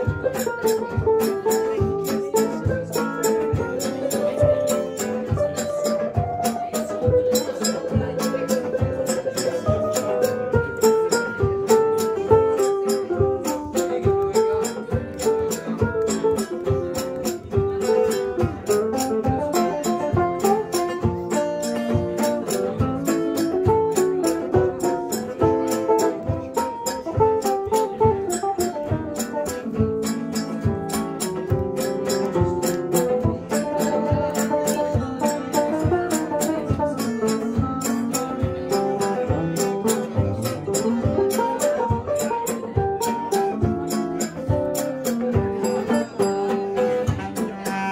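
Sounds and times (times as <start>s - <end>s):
strummed acoustic guitars: 0.0s - 47.9s.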